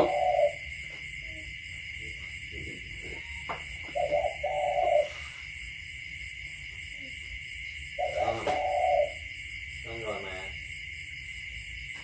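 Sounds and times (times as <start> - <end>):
animal hooting call: 0.0 - 0.7, 3.0 - 5.4, 8.0 - 9.2.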